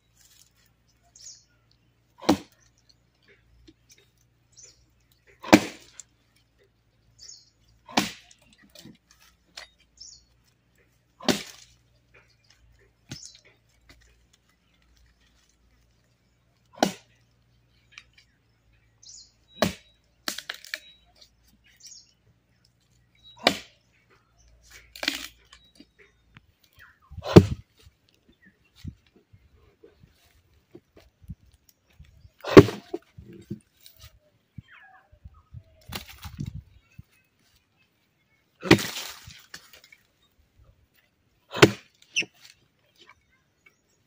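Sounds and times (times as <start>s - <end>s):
axe chopping into log: 2.2s - 2.6s, 5.4s - 6.0s, 7.9s - 8.9s, 11.2s - 11.7s, 16.8s - 17.1s, 19.6s - 20.8s, 23.4s - 23.8s, 27.2s - 27.6s, 32.4s - 33.0s, 38.6s - 39.4s, 41.5s - 41.9s.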